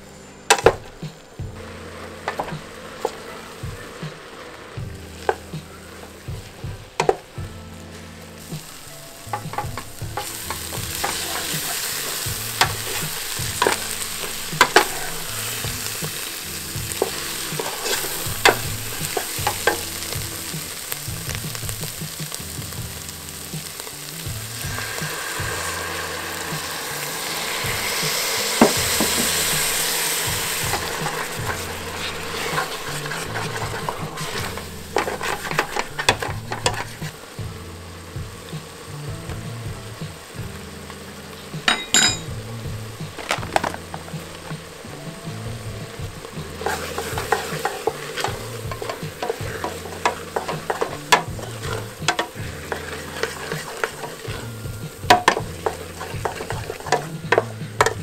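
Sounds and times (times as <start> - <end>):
onions sizzling in a pot: 0.0 - 58.0
wooden spatula knocking on pot: 4.8 - 7.5, 8.6 - 25.8, 26.6 - 37.6, 41.7 - 44.6, 45.6 - 58.0.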